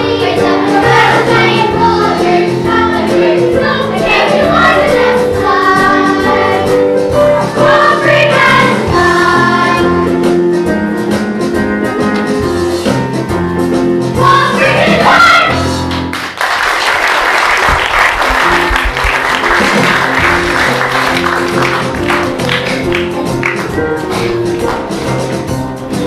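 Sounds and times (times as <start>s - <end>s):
people singing: 0.0s - 10.2s, 14.2s - 15.7s
band playing: 0.0s - 16.1s, 17.6s - 26.0s
audience applause: 16.1s - 23.7s.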